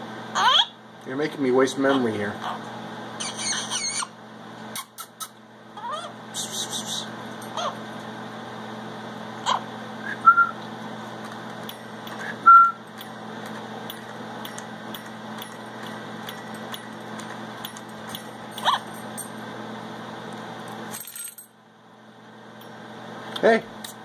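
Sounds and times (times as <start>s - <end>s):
steady background hum: 0.0s - 24.0s
parrot chirps and whistles: 3.2s - 7.8s, 9.4s - 10.6s, 12.2s - 12.8s.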